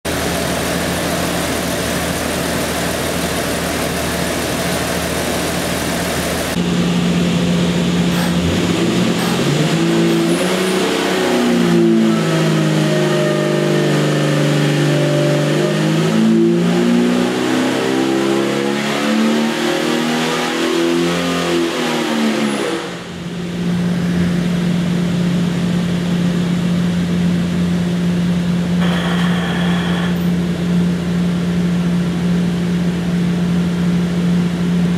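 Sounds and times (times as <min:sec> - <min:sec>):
engine revving on dynamometer: 0:04.5 - 0:23.2, 0:28.8 - 0:30.2.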